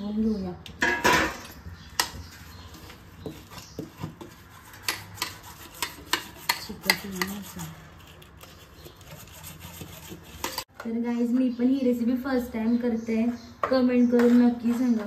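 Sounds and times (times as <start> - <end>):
spoon scraping a steel plate: 0.8 - 10.7.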